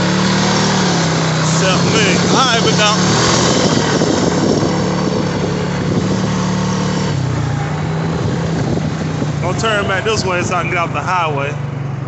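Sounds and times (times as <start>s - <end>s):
constant rushing noise: 0.0s - 6.3s
atv engine running: 0.0s - 12.0s.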